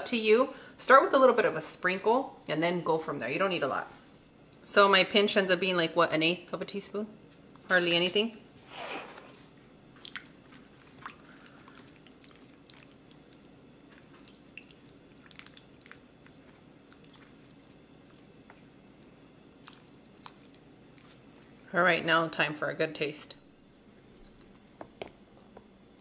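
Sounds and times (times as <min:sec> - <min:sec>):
low steady hum: 0:00.0 - 0:26.0
wet squishing of stirring: 0:09.9 - 0:22.0.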